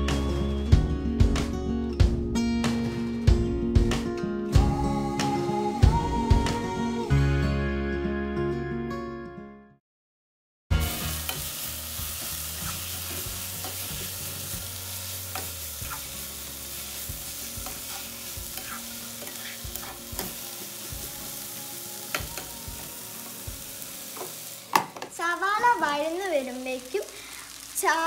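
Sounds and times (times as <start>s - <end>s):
onions sizzling in a pan: 10.7s - 28.0s.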